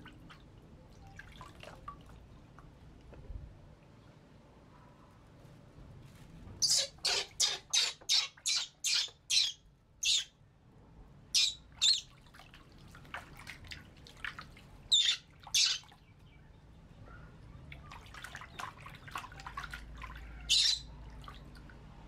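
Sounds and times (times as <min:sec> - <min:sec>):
baby monkey squealing: 0:06.6 - 0:10.3, 0:11.4 - 0:12.0, 0:20.5 - 0:20.8.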